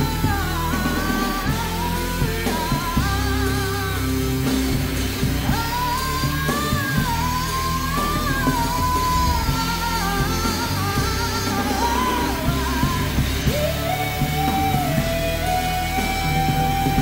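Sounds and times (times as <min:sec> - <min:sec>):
drum kit: 0:00.0 - 0:17.0
live band over loudspeakers: 0:00.0 - 0:17.0
sung melody: 0:00.0 - 0:17.0.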